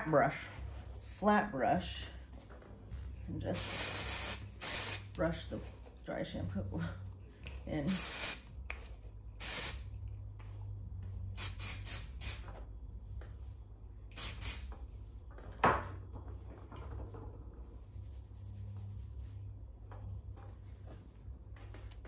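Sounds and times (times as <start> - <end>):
aerosol spray hissing: 3.6 - 5.1, 7.9 - 8.5, 9.4 - 9.9, 11.4 - 12.4, 14.1 - 14.7
brush rubbing through hair: 17.6 - 19.7.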